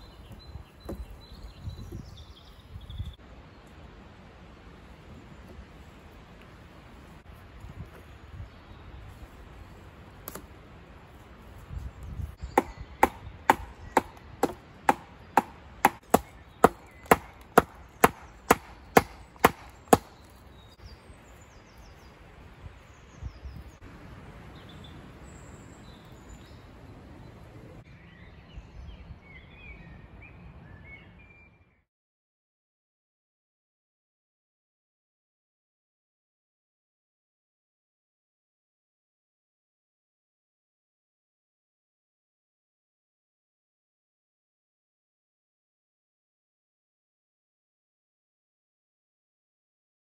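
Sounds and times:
wood being chopped: 10.2 - 10.5, 12.4 - 20.4.

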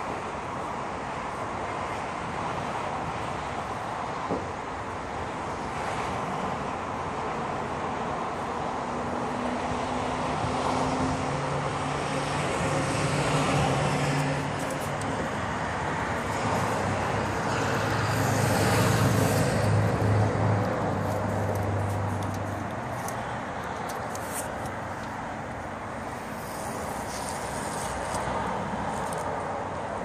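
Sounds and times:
traffic rumble: 0.0 - 30.0
engine hum: 3.8 - 30.0.

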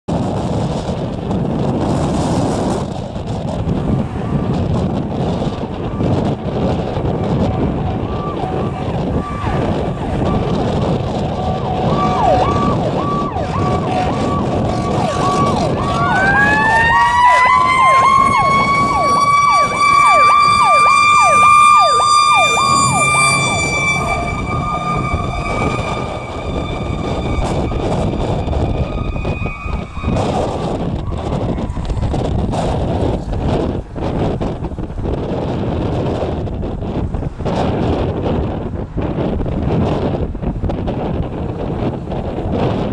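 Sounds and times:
wind rumbling on microphone: 0.0 - 42.9
fire engine siren wailing: 0.5 - 34.5
siren yelping: 7.1 - 32.2
cars driving past: 17.2 - 33.4.

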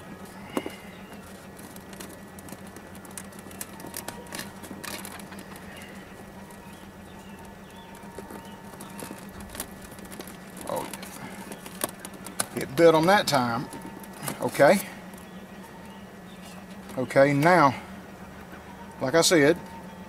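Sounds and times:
wires clicking and rustling: 0.0 - 15.8
steady low hum: 0.0 - 20.0.

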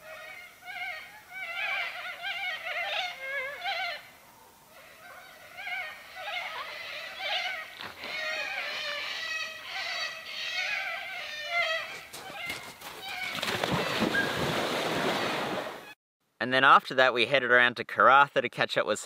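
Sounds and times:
birds chirping: 0.0 - 15.4
splash into water: 13.2 - 15.9.

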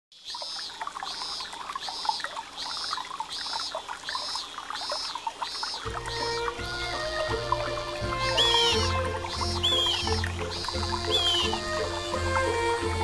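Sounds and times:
water trickling and dripping: 0.1 - 13.0
music: 5.8 - 13.0.

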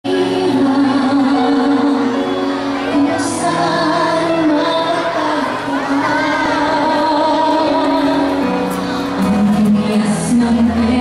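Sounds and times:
musical accompaniment: 0.0 - 11.0.

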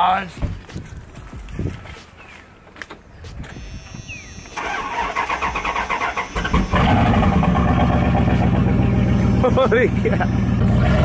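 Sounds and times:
starter motor cranking: 3.6 - 7.6
truck engine running: 4.6 - 11.0.

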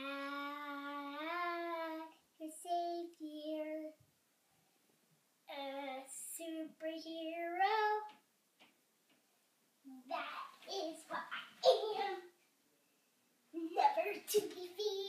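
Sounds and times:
girl singing unaccompanied: 0.0 - 4.0, 5.4 - 8.3, 9.9 - 12.4, 13.6 - 15.0.

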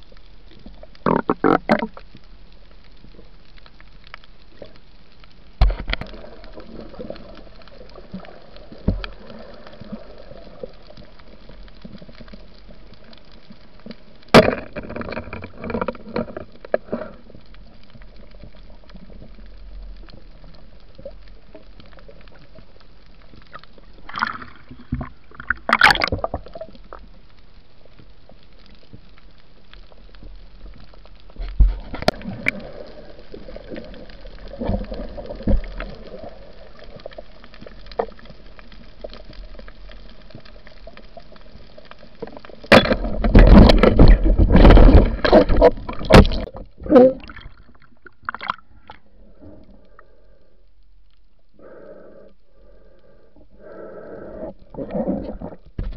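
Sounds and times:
splashing and bubbling bursts: 24.0 - 26.7, 42.6 - 49.0
muffled underwater rush: 28.9 - 55.9.

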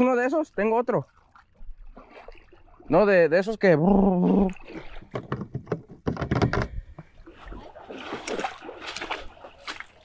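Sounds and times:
knocks and clatter on plastic kayak: 4.6 - 9.9.

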